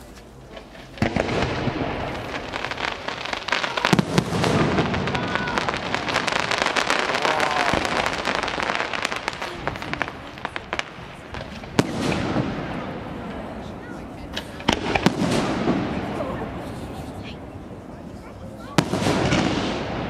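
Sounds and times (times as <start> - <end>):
rapid firework cracks and pops: 0.1 - 12.9, 14.3 - 16.3, 18.7 - 20.0
sharp firework bang: 1.0 - 8.8, 14.4 - 16.7, 18.7 - 20.0
firework shells bursting: 14.3 - 16.7.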